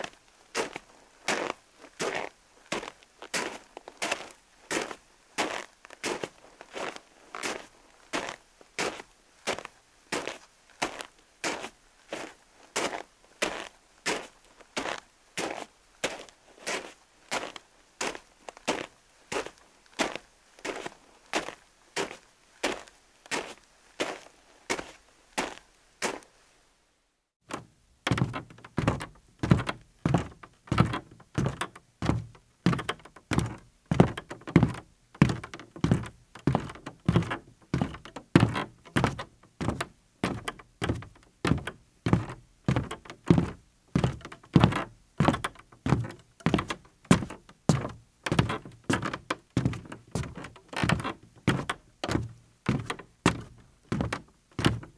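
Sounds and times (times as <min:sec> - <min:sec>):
percussive thuds: 0:28.1 - 0:54.9.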